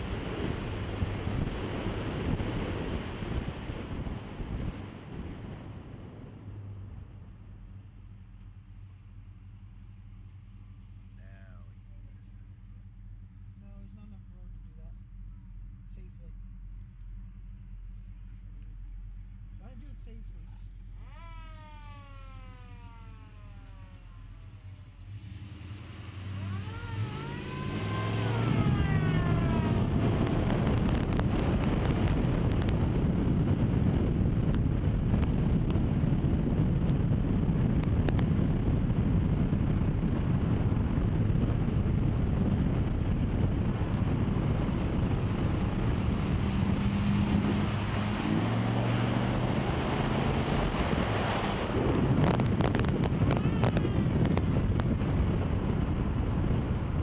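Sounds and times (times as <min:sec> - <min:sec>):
wind buffeting microphone: 0:00.0 - 0:11.1, 0:16.4 - 0:57.0
car engine running: 0:00.0 - 0:57.0
rising and falling whine: 0:20.6 - 0:57.0.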